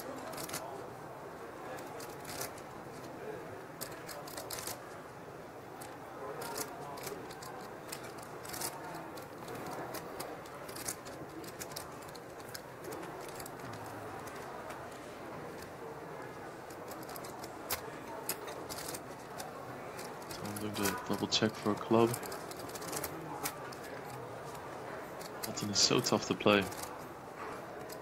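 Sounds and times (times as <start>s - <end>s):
low background murmur: 0.0s - 28.0s
poker chips clicking: 16.7s - 24.6s.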